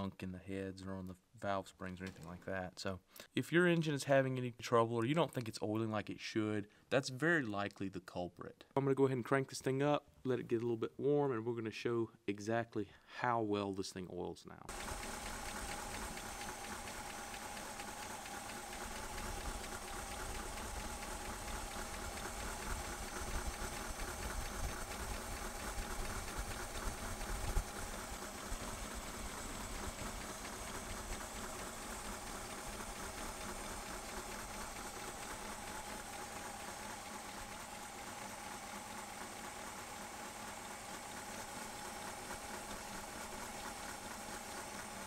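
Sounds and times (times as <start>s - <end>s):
engine valvetrain clatter: 14.7s - 37.6s.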